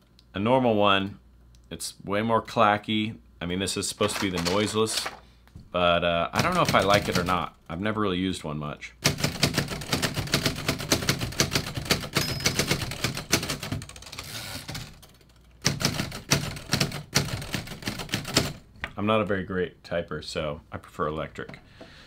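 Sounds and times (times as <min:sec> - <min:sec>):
typewriter keystrokes: 0:06.4 - 0:07.4, 0:09.0 - 0:18.6.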